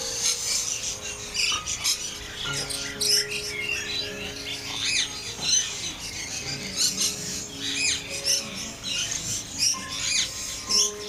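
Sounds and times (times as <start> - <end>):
birds chirping: 0.0 - 11.0
low sustained music notes: 0.0 - 11.0.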